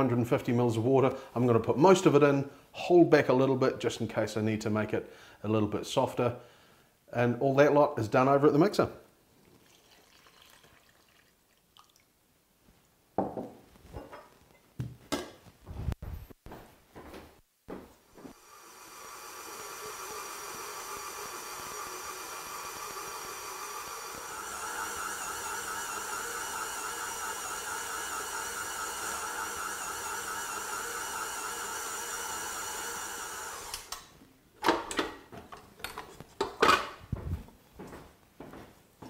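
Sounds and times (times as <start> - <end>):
stand mixer motor running: 18.4 - 34.0.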